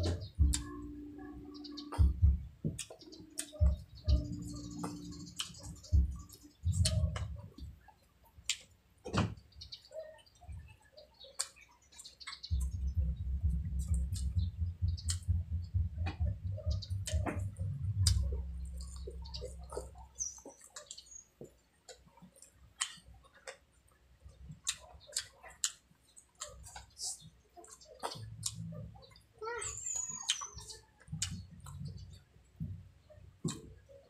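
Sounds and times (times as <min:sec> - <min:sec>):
chewing and mouth smacks: 0:00.0 - 0:00.8, 0:01.9 - 0:07.4, 0:08.4 - 0:08.7, 0:11.4 - 0:12.7, 0:13.6 - 0:14.4, 0:15.0 - 0:15.3, 0:17.0 - 0:21.2, 0:21.8 - 0:29.2, 0:30.0 - 0:32.1
low rumble: 0:12.5 - 0:20.1.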